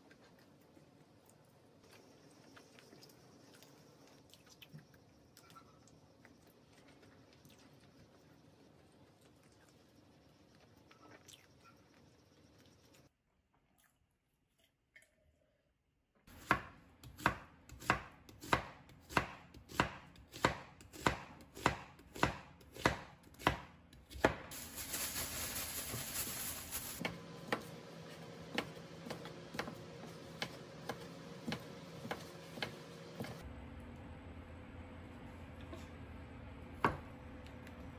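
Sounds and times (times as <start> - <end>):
knife chopping on cutting board: 16.4 - 24.5, 27.0 - 27.7, 28.5 - 33.4.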